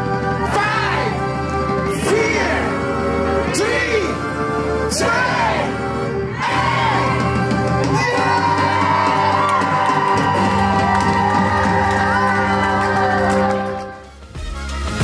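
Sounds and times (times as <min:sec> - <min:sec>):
crowd cheering and singing along: 0:00.0 - 0:15.0
live band with piano and drums: 0:06.6 - 0:15.0.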